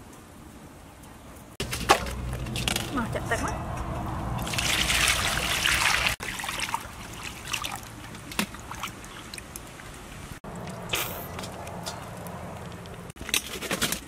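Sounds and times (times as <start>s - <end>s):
tap water splashing in metal basin: 4.4s - 9.0s.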